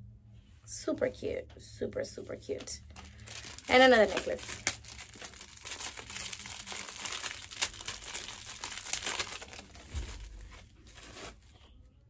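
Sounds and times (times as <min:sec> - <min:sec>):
wrapping crinkling and rustling: 0:02.1 - 0:11.8.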